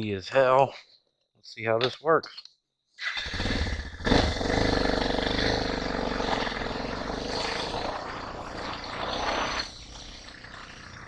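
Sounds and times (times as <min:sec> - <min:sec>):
motorcycle engine revving: 0:03.2 - 0:11.0.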